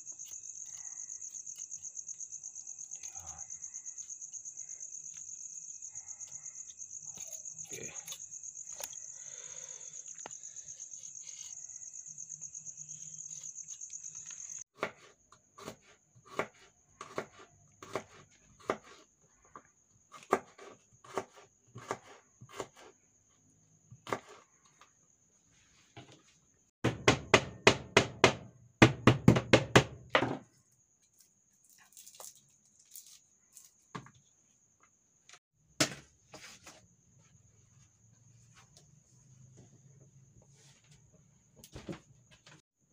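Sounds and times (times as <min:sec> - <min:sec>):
insects chirring: 0:00.0 - 0:14.7
knife chopping on cutting board: 0:14.8 - 0:19.0.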